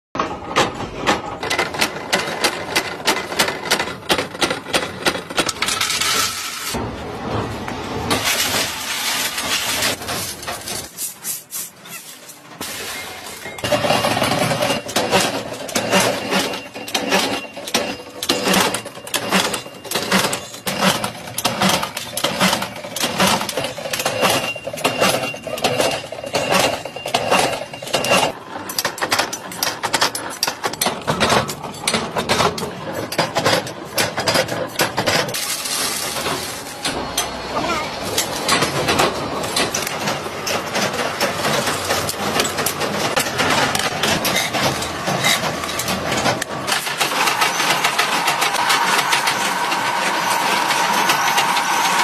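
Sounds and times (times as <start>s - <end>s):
machinery clanking rhythmically: 13.0s - 52.0s.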